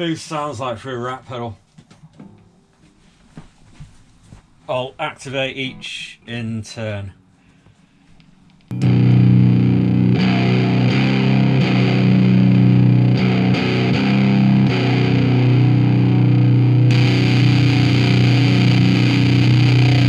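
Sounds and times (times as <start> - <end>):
heavily distorted electric guitar: 8.7 - 20.0.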